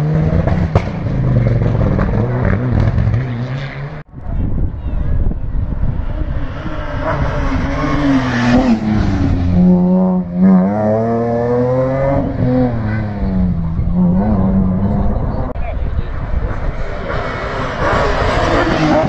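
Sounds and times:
rally car engine revving: 0.0 - 4.1, 5.7 - 19.0.

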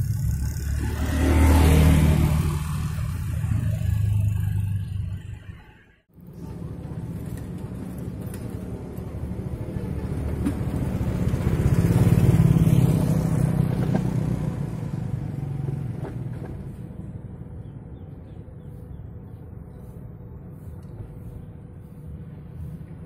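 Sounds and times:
motorcycle passing by: 0.0 - 5.3, 6.4 - 18.2.

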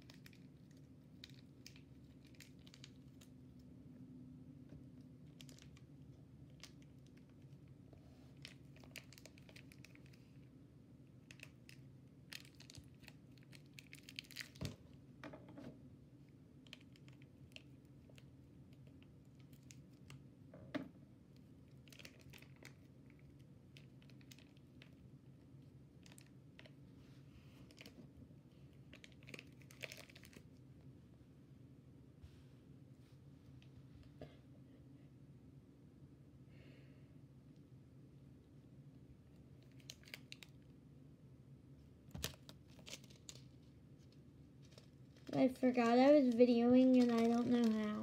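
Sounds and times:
faint clicks and crinkles: 0.0 - 3.7, 4.6 - 10.5, 11.2 - 30.6, 39.3 - 40.8, 42.2 - 48.0
low room hum: 0.0 - 48.0.

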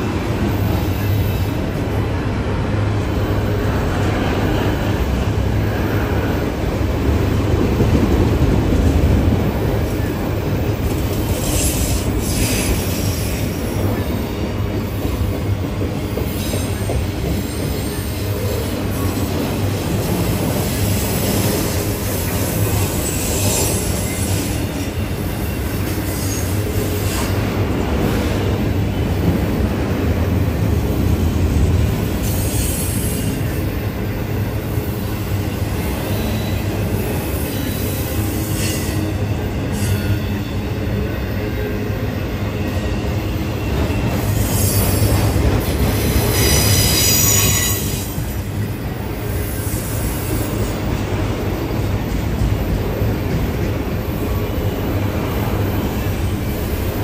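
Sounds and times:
train wheels rumbling on rails: 0.0 - 57.0
high wheel squeals: 46.2 - 48.3.

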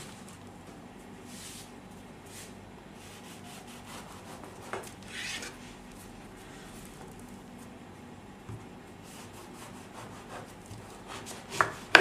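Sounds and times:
knife sawing through bread: 3.0 - 5.7, 9.1 - 11.9.

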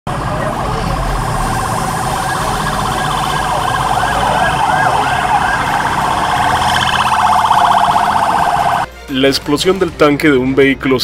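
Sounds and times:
street noise: 0.1 - 8.9
emergency vehicle siren: 0.3 - 8.9.

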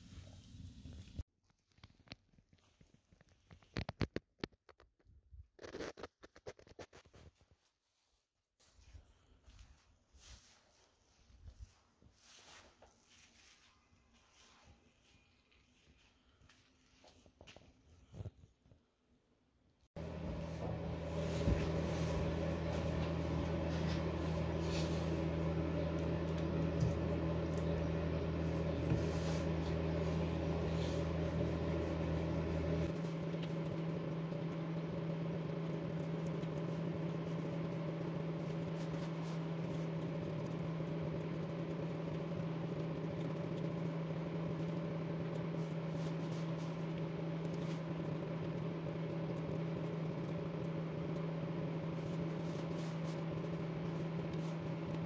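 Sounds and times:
fan heater humming: 20.0 - 55.0.

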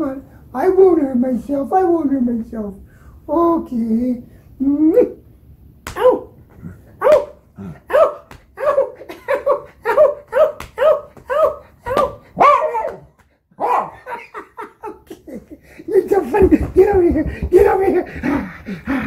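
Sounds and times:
hand patting leg: 5.8 - 7.4, 8.0 - 8.7, 10.3 - 13.4, 16.1 - 18.4
dog barking excitedly: 7.0 - 14.4.

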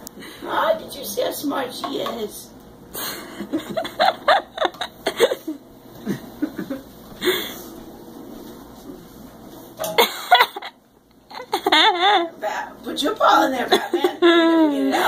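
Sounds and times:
people chuckling and laughing: 3.0 - 7.6, 10.0 - 12.4, 13.7 - 15.0.

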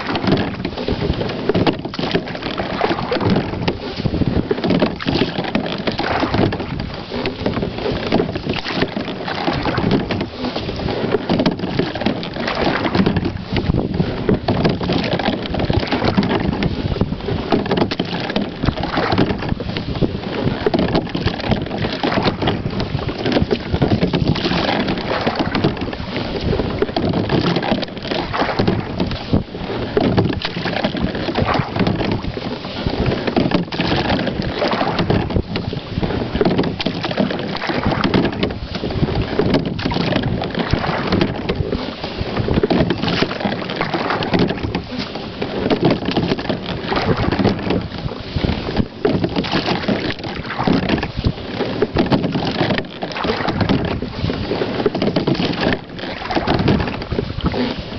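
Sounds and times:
water moving along hull: 0.0 - 57.9
wind over microphone: 0.0 - 57.9.

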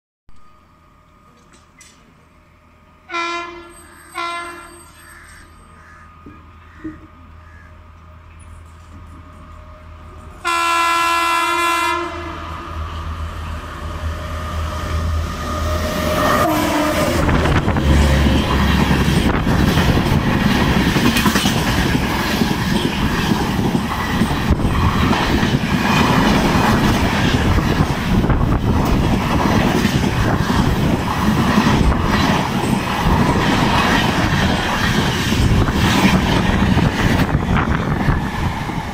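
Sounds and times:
train coaches rushing past: 0.5 - 38.9
locomotive horn blast: 3.1 - 4.8, 10.4 - 12.6
train wheel clatter on rails: 17.0 - 38.9.

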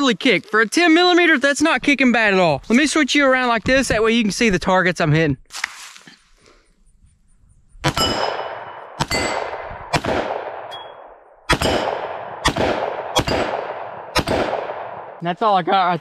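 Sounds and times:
pistol shots echoing: 7.8 - 15.2
steel targets ringing: 7.9 - 9.5.

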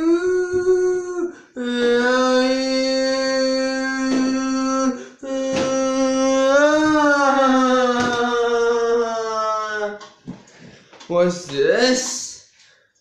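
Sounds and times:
man singing unaccompanied: 0.0 - 10.0.

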